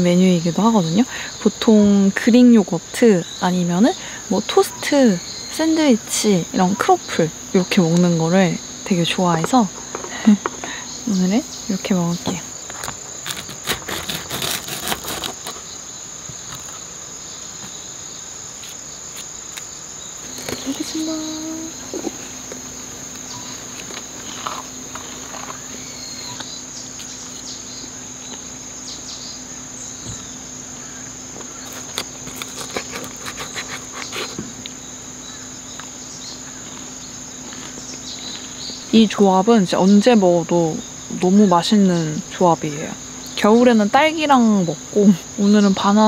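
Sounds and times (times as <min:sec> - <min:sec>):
insects chirring: 0:00.0 - 0:46.0.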